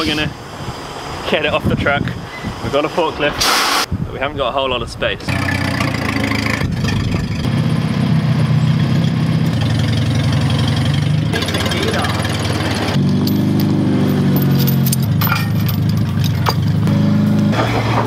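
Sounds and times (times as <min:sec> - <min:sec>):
forklift engine running: 0:05.3 - 0:18.0.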